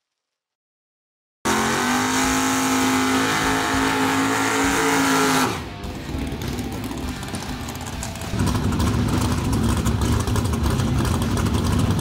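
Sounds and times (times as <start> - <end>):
truck engine revving high: 1.4 - 12.0.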